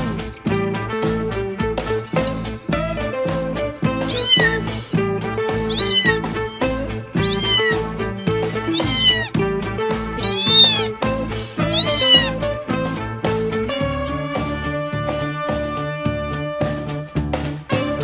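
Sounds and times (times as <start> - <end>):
background music with steady beat: 0.0 - 18.0
cat meowing: 4.1 - 4.7, 5.6 - 6.3, 7.2 - 7.9, 8.5 - 9.4, 10.2 - 11.0, 11.6 - 12.4.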